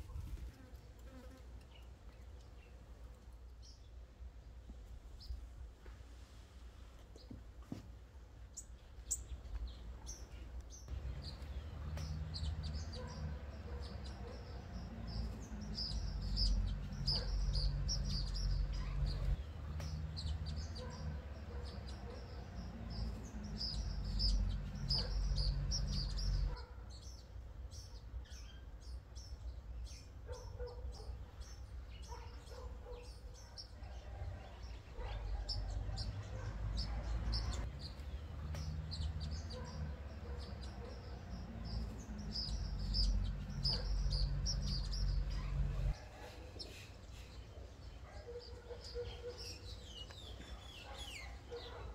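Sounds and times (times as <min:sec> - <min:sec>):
small birds chirping: 0:00.0 - 0:06.1, 0:06.9 - 0:51.9.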